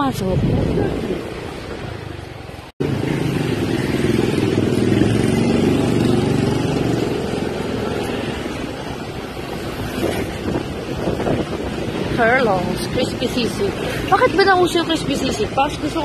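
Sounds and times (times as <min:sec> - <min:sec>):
motorcycle engine running: 0:02.8 - 0:08.8.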